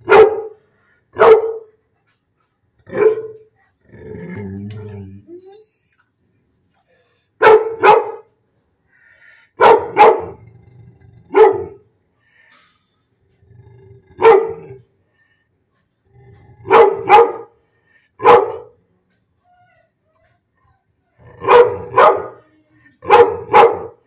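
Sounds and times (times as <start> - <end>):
dog barking: 0.0 - 0.6, 1.2 - 1.8, 2.9 - 3.5, 7.4 - 8.3, 9.6 - 10.4, 11.3 - 11.8, 14.2 - 14.7, 16.6 - 17.6, 18.2 - 18.8, 21.2 - 24.0.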